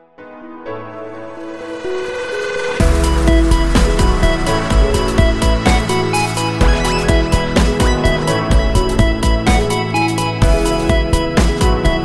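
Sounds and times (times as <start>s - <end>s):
sustained synth tones: 1.4s - 7.0s
beat with deep bass and drums: 2.7s - 12.0s.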